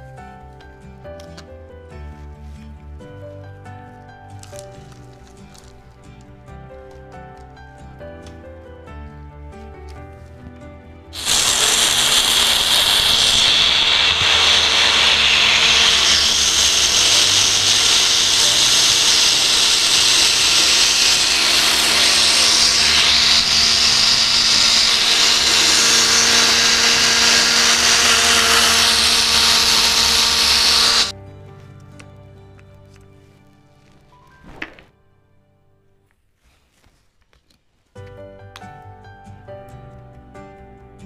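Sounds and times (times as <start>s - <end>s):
blender crushing ice: 11.2s - 31.1s.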